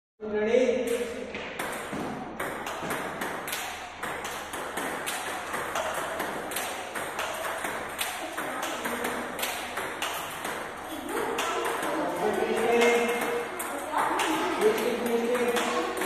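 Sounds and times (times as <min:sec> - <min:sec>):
table tennis balls clicking: 0:00.8 - 0:16.0.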